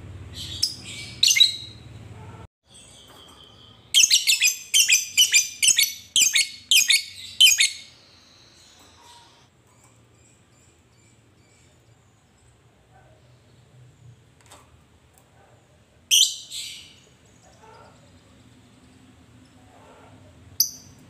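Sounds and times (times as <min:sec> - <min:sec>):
lovebird chirping: 0:00.3 - 0:01.8, 0:02.7 - 0:09.4, 0:16.1 - 0:17.0
bird shrill call: 0:02.8 - 0:09.4.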